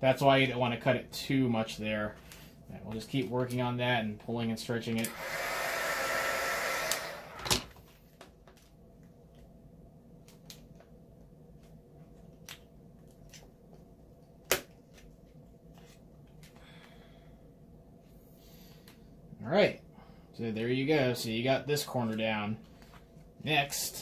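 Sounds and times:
heat gun blowing hot air: 5.0 - 7.7.

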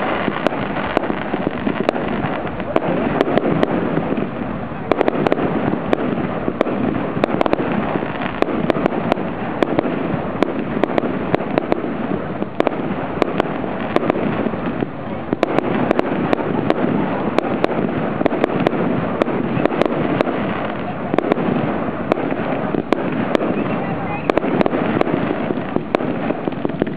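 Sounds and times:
continuous noisy din: 0.0 - 26.9
fireworks bangs and cracks: 0.0 - 26.9.

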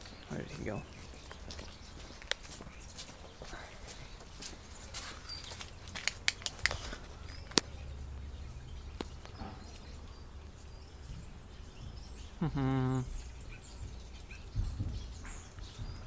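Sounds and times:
footsteps on leafy path: 0.0 - 11.5
sharp clicks: 5.6 - 7.8
low outdoor rumble: 5.6 - 16.0
short low voiced call: 12.4 - 13.2.

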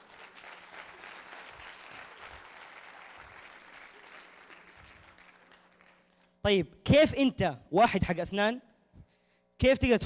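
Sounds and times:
distant audience applauding: 0.0 - 6.3.

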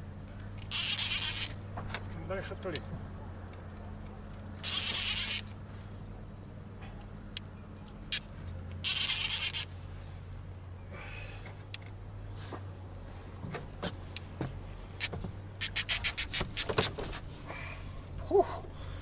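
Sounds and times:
low steady hum: 0.0 - 19.0
fishing reel clicks: 0.6 - 1.6, 4.6 - 5.5, 8.1 - 9.7, 15.0 - 16.7.

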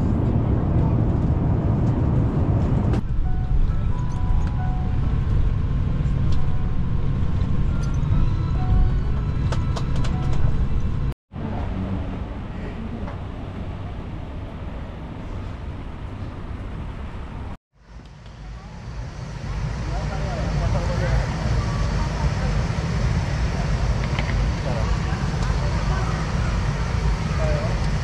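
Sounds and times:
airliner engines rumbling: 0.0 - 28.0
airport terminal ambience: 18.6 - 28.0.

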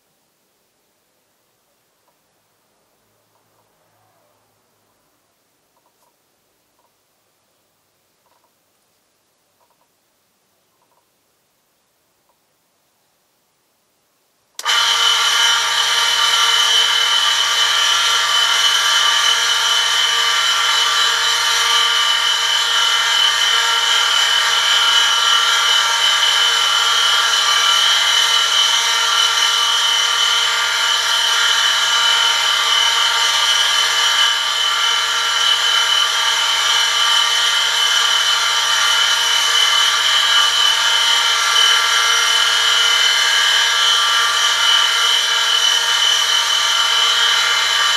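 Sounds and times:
electric motor hum: 14.6 - 47.9.

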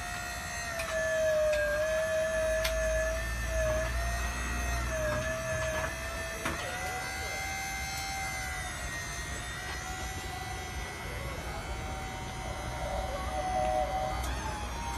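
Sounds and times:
lifting machine motor whining: 0.0 - 14.9
click: 2.6 - 2.8.

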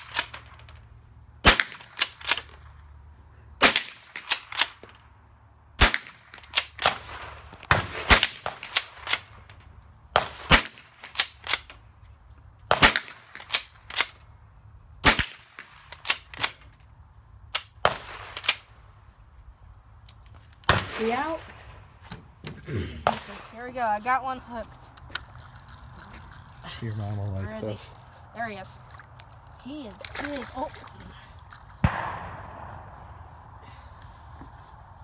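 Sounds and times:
rifle shots cracking: 1.4 - 2.5, 3.6 - 4.8, 5.8 - 9.3, 10.2 - 11.7, 12.7 - 14.2, 15.0 - 16.6, 31.8 - 33.3.

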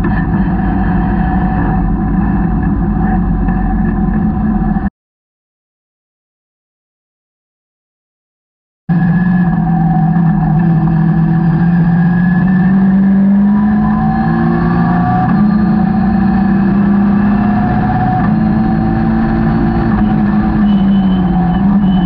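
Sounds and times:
car engine at high revs: 0.0 - 4.9, 8.9 - 22.0
wind and road noise: 0.0 - 4.9, 8.9 - 22.0.

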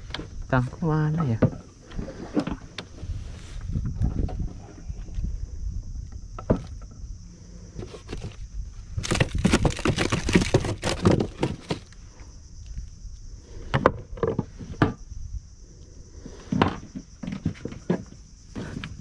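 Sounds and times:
rustling and knocks in wooden boat: 0.0 - 12.8, 13.6 - 15.2, 16.3 - 19.0.

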